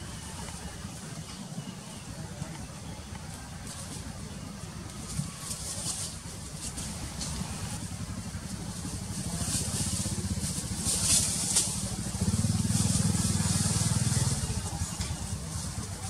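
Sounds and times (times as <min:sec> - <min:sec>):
small engine pulsing hum: 0:00.0 - 0:16.0
faint high hiss: 0:05.1 - 0:07.9.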